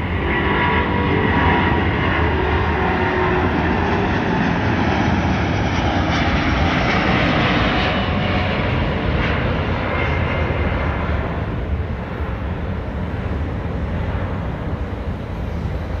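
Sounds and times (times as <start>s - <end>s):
jet airliner engine rumble: 0.0s - 16.0s.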